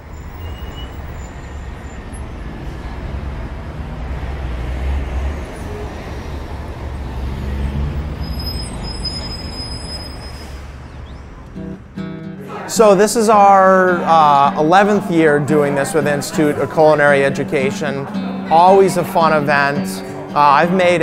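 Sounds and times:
faint high squeal: 0.0 - 2.3, 8.1 - 11.2
road traffic rumble: 0.0 - 21.0.

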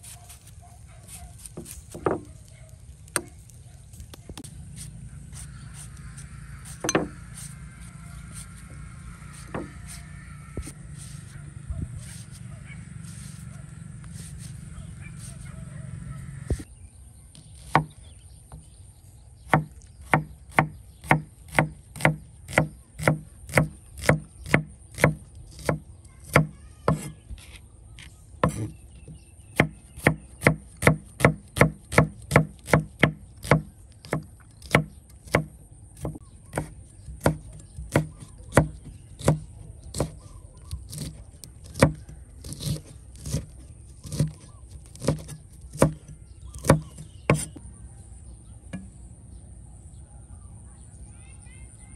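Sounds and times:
knife chopping on cutting board: 6.8 - 7.2, 19.5 - 27.1, 29.6 - 47.6.

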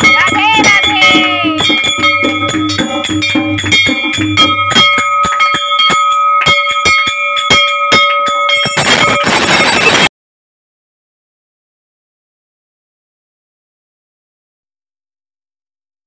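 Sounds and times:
bell rung rapidly: 0.0 - 10.1.

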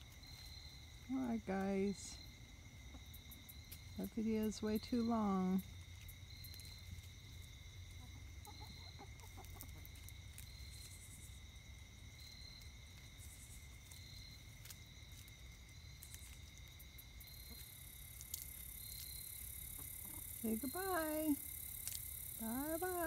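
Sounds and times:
pulsing insect chorus: 0.0 - 23.0
hens clucking softly: 7.9 - 10.0.

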